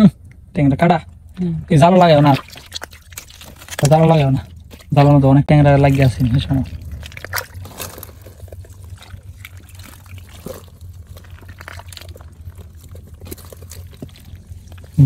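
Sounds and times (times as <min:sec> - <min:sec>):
low steady hum: 0:00.0 - 0:15.0
water splashing and trickling: 0:01.3 - 0:15.0.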